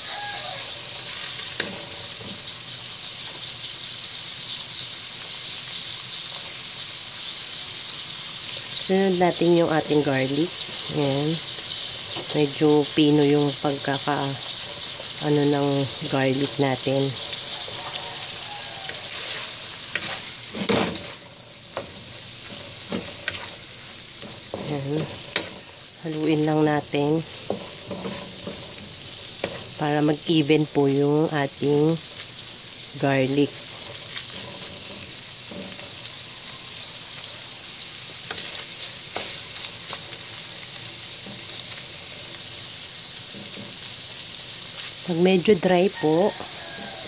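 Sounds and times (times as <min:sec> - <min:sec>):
food sizzling in butter: 0:00.0 - 0:47.0
wooden spatula scraping pan: 0:00.2 - 0:02.6, 0:09.8 - 0:30.8, 0:31.4 - 0:36.5
wooden spatula knocking pan: 0:27.4 - 0:29.8.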